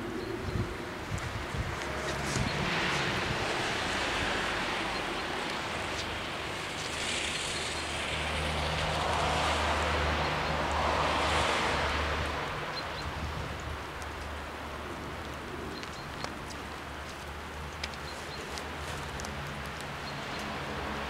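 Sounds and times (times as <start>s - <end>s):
wind blowing over microphone: 0.0s - 9.8s, 10.8s - 14.4s.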